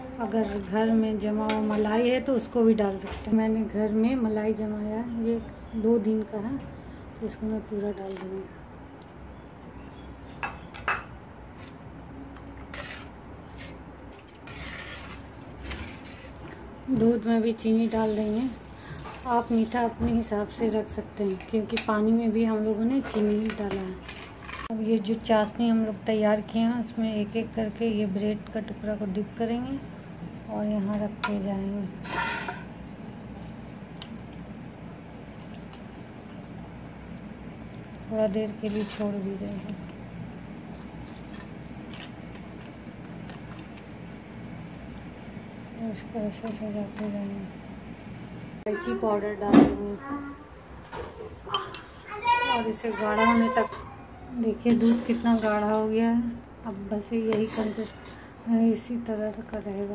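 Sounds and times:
spoon scraping pan: 0:12.4 - 0:16.6, 0:32.0 - 0:32.8, 0:54.5 - 0:55.9, 0:57.2 - 0:58.3.

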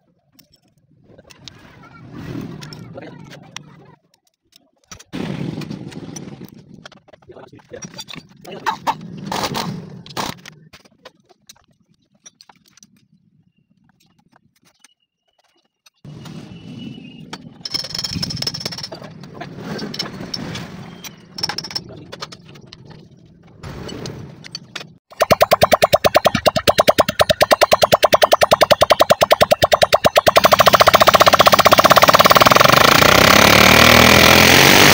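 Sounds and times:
pulsing electronic sound effect: 0:25.1 - 0:34.9.

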